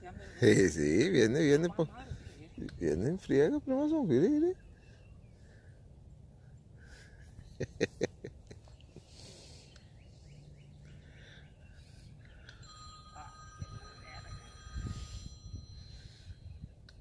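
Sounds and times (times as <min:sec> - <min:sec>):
bird chirps: 0:08.6 - 0:12.8
phone ringtone: 0:12.5 - 0:16.4.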